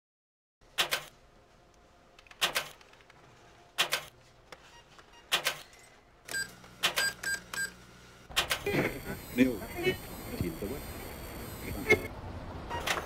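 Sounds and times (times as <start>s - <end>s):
short electronic beeps: 6.3s - 7.7s, 8.9s - 12.1s.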